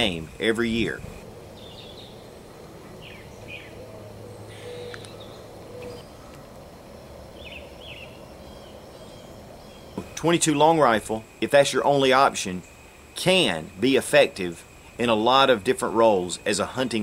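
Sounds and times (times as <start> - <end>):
steady low hiss: 0.0 - 17.0
faint bird chirps: 3.0 - 6.5.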